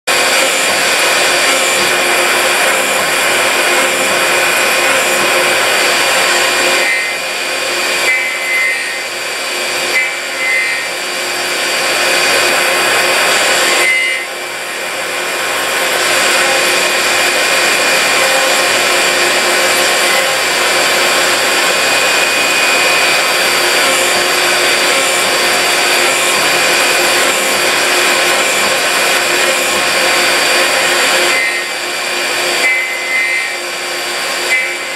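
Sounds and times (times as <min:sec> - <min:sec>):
lathe machine whir and hiss: 0:00.1 - 0:34.9
short high tones: 0:13.6 - 0:14.3.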